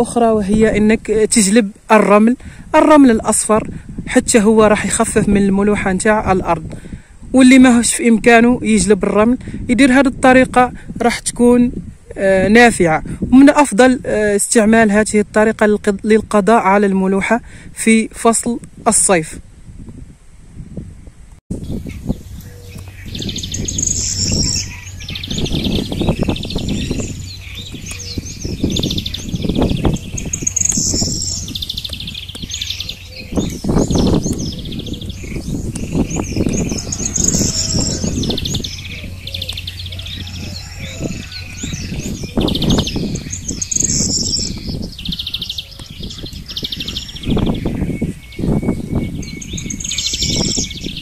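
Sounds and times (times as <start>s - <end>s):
small birds chirping: 21.5s - 51.0s.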